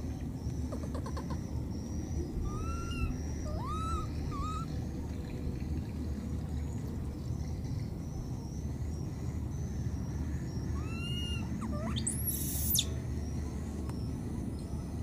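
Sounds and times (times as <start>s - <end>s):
baby monkey coo calls: 0.7s - 4.8s, 10.6s - 13.0s.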